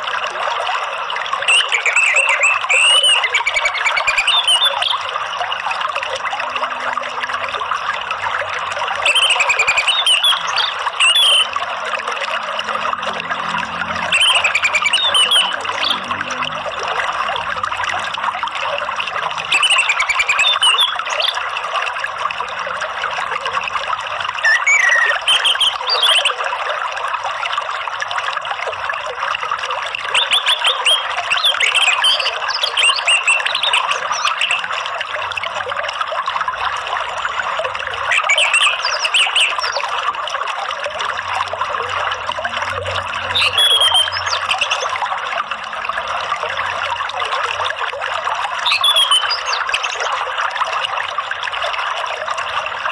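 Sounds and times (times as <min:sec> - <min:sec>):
running water: 0:00.0 - 0:52.9
songbird whistles and chirps: 0:01.5 - 0:05.0, 0:09.0 - 0:11.5, 0:14.1 - 0:16.0, 0:19.5 - 0:21.4, 0:24.4 - 0:26.4, 0:43.3 - 0:44.9, 0:48.6 - 0:50.1.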